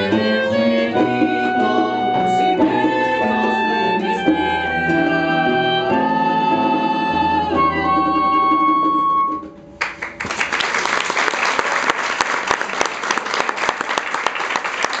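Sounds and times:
audience applause: 9.8 - 15.0.

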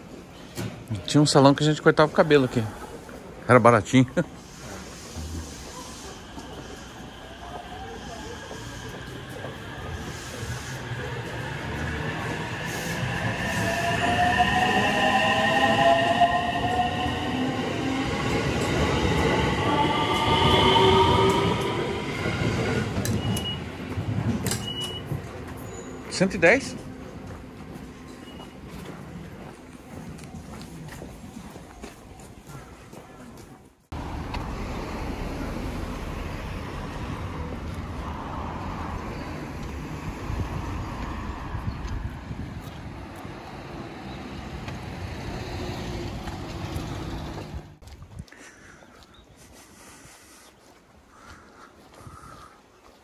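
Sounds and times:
wheels rumbling on rails: 4.3 - 49.8
road traffic rumble: 33.9 - 52.8.

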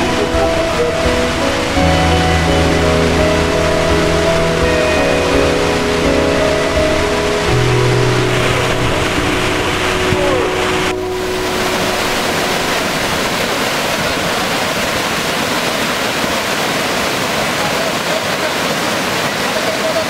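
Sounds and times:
faint music tones: 0.0 - 15.7
stream rushing over rocks: 0.0 - 20.0.

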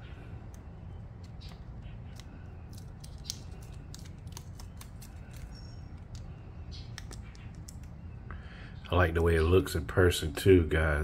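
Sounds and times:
low steady hum: 0.0 - 11.0
crinkling clicks of tape: 1.2 - 6.3, 6.9 - 8.0
paper backing peeling off tape: 1.2 - 6.3.

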